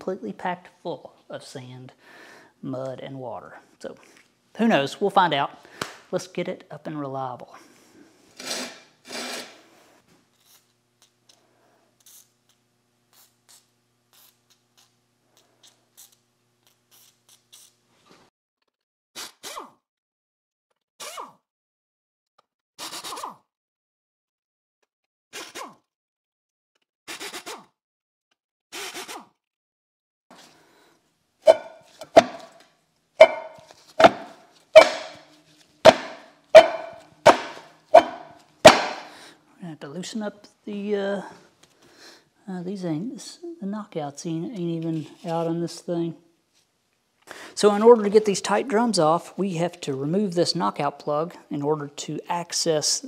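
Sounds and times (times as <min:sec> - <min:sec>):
metal axle clatter: 0:33.2 - 0:35.2, 0:35.9 - 0:39.0.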